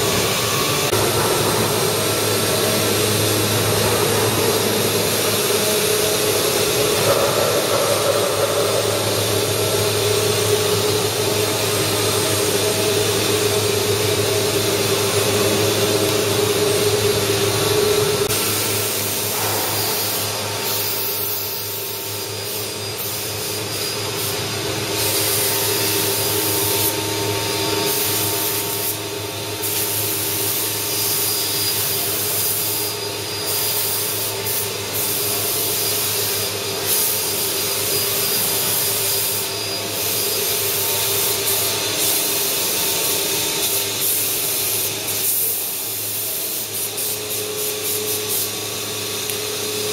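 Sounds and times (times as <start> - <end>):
wood cutting noise: 0.0 - 33.0.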